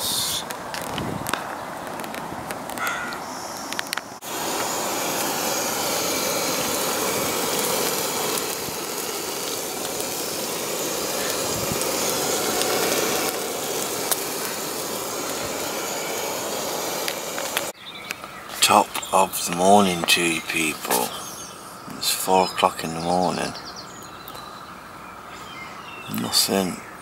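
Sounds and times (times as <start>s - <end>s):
gas stove burner hissing: 0.0s - 0.5s, 3.5s - 17.8s, 18.5s - 23.3s.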